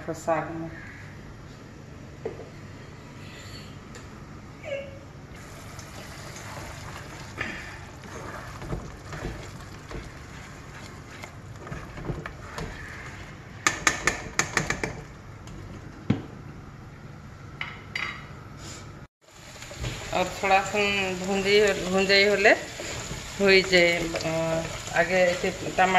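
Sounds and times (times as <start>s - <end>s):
spatula stirring in steel pot: 6.4s - 15.0s.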